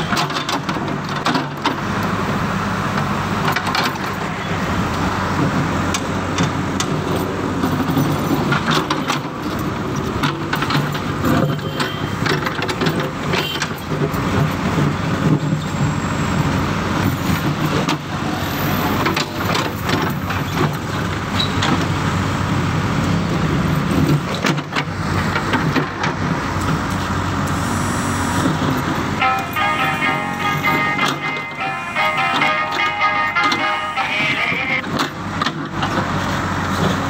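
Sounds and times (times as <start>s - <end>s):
diesel engine under load: 0.0s - 37.0s.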